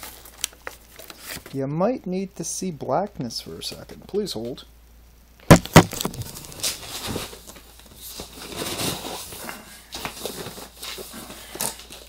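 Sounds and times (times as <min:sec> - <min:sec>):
cardboard rustling and scraping: 0:05.6 - 0:12.0.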